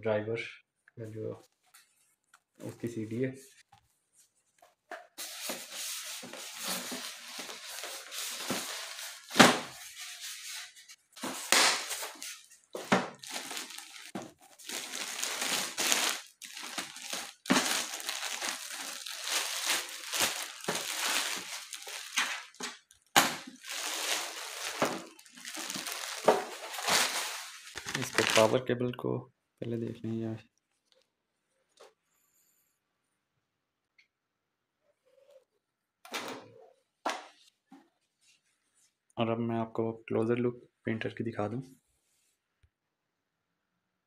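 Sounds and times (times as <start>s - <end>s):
polystyrene foam rubbing: 5.2s - 22.6s, 23.5s - 28.5s
plastic bag rustling: 5.2s - 28.6s.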